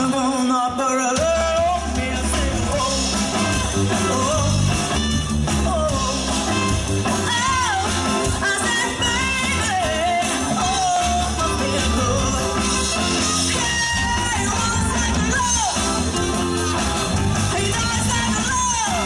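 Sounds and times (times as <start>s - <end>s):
rock band playing: 0.0s - 19.0s
woman singing lead: 0.0s - 19.0s
trumpet: 2.7s - 19.0s.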